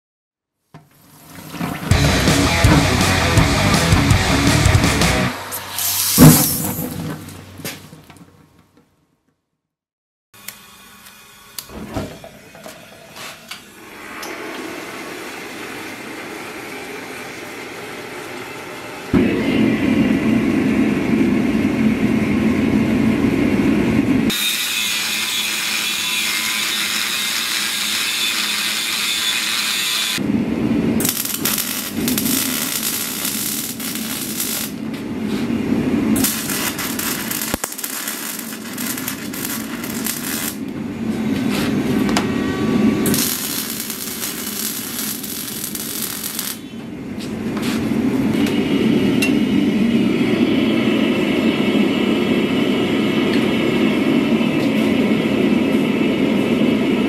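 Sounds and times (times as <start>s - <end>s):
power tool working steel: 1.8s - 6.3s, 24.3s - 30.2s, 31.0s - 35.4s, 36.2s - 40.7s, 42.4s - 46.7s.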